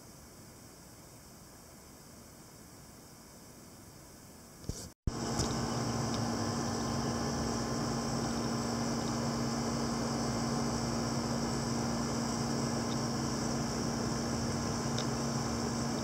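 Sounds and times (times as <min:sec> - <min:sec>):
low steady hum: 0:04.7 - 0:16.0.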